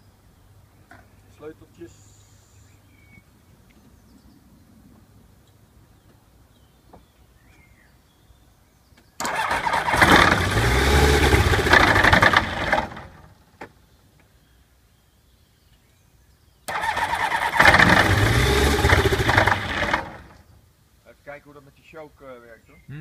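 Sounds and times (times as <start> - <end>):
electric starter cranking engine: 9.2 - 13.1, 16.7 - 20.3.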